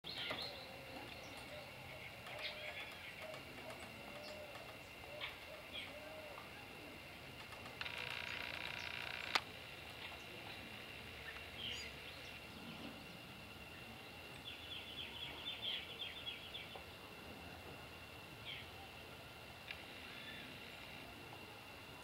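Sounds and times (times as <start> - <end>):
faint outdoor ambience: 0.0 - 22.0
buzzing tone: 7.5 - 16.0.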